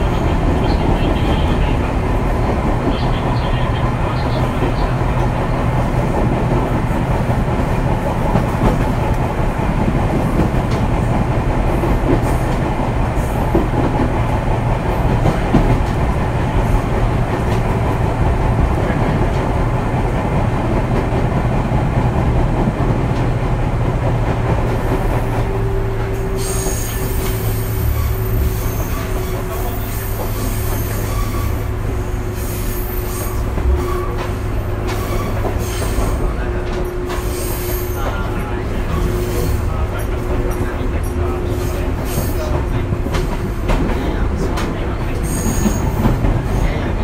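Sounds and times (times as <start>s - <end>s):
train wheels and motors rumbling: 0.0s - 47.0s
wheels hissing and squealing: 26.3s - 34.2s, 37.2s - 38.2s.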